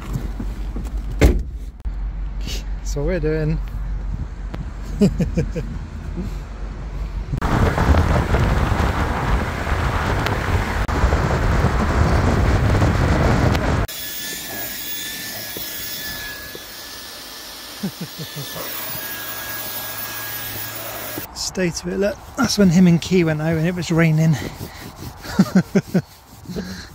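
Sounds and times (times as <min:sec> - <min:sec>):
road noise in moving car: 0:00.0 - 0:13.9
wind noise: 0:07.2 - 0:13.9, 0:21.2 - 0:26.9.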